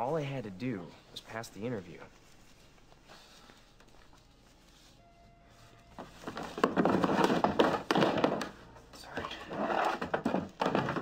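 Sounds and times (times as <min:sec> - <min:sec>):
shirt rustling and crinkling: 0:00.0 - 0:08.4.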